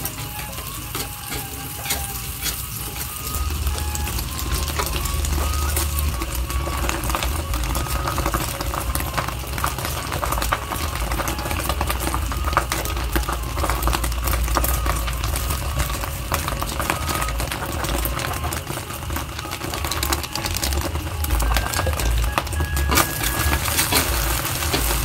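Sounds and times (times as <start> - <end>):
crackles and clicks: 0.0 - 25.0
gas burner rumble: 0.0 - 25.0.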